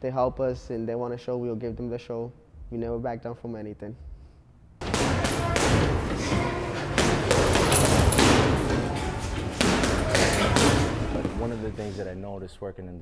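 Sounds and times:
heavy thuds and knocks: 4.8 - 12.0.

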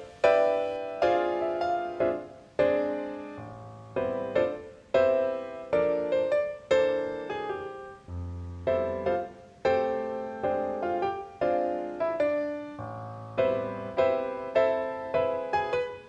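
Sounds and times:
piano chords: 0.0 - 16.0.

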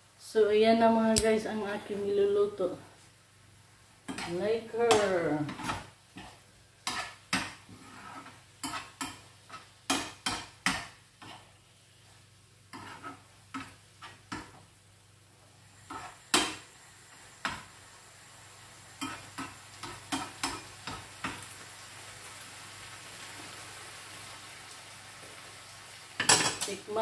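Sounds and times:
food sizzling: 0.0 - 27.0
metal spoon scraping a pan: 4.1 - 11.6, 12.7 - 14.6, 15.8 - 16.7, 19.0 - 21.1.

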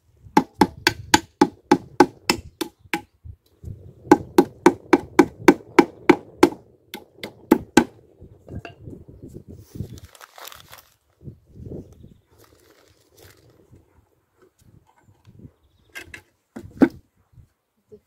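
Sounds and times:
hammer striking nail into wood: 0.4 - 3.1, 4.1 - 7.9.

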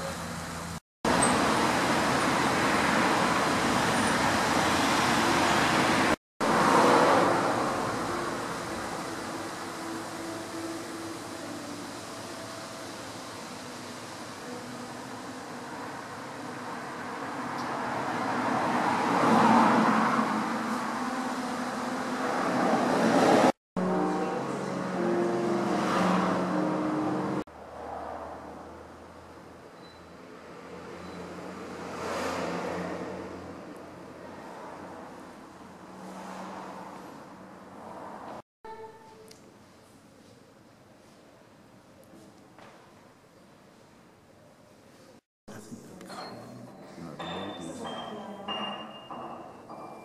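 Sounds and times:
road traffic noise: 0.0 - 40.4, 44.9 - 50.0.

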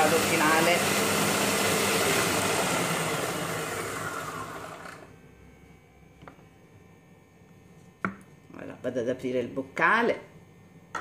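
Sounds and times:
food processor whining: 0.0 - 5.2.

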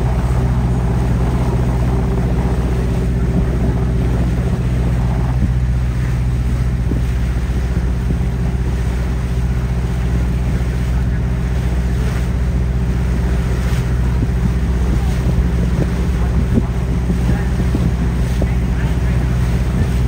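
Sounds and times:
boat engine droning: 0.0 - 20.0
water noise: 0.0 - 20.0
wind: 0.0 - 20.0.

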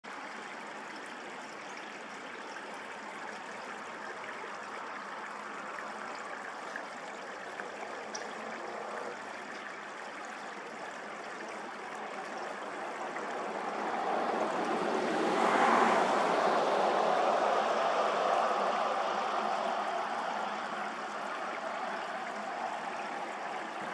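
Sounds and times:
steady rushing noise: 12.1 - 23.9.

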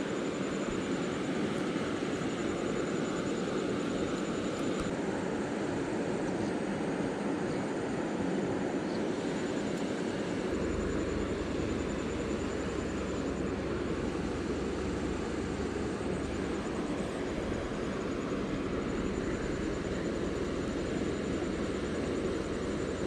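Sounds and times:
rushing outdoor noise: 0.0 - 23.0
faint high pulsing tone: 7.7 - 23.0
low hum: 8.9 - 23.0.

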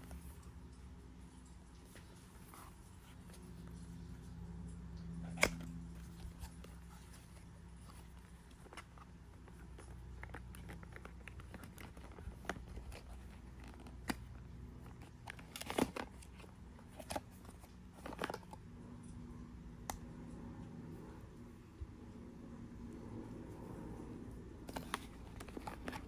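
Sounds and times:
cardboard packaging scraping and crinkling: 5.2 - 18.6, 24.6 - 26.0
cardboard rustling: 5.2 - 18.6, 24.6 - 26.0.

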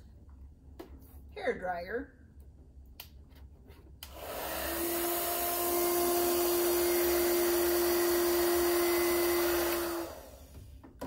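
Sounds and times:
hair dryer blowing: 4.1 - 10.7.

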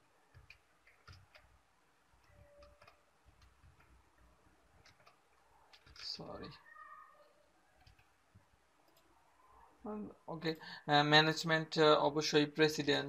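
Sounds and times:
keyboard keys clicking: 0.3 - 1.5, 2.2 - 4.0, 4.8 - 6.3, 7.8 - 8.1.

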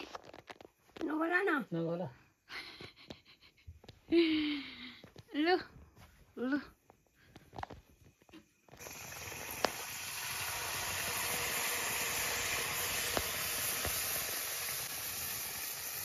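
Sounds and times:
batter sizzling in hot oil: 8.7 - 16.0.

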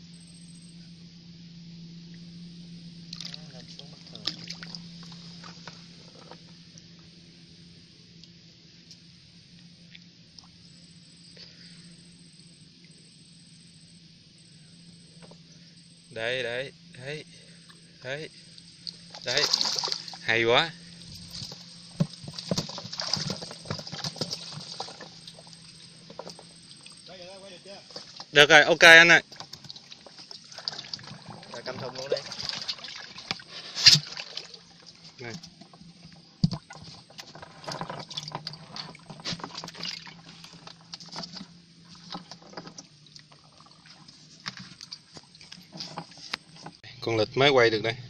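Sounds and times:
faint low hum: 0.0 - 48.0
eel slapping and splashing in bucket: 3.1 - 6.4, 18.8 - 20.4, 21.1 - 27.1, 27.8 - 28.4, 29.2 - 46.8.

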